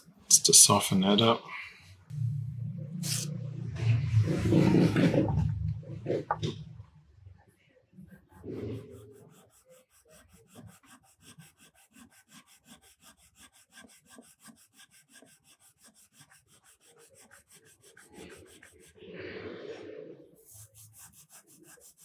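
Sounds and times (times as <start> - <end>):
hand rubbing small metal parts: 3.0 - 3.3.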